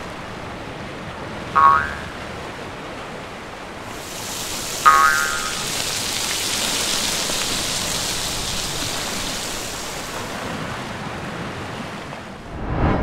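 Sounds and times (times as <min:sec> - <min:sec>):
sizzling hiss: 0:03.9 - 0:10.4.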